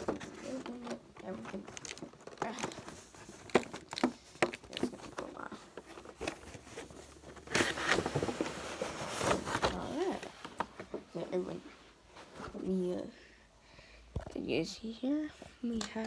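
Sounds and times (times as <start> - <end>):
packaging rustling and crinkling: 0.0 - 11.2.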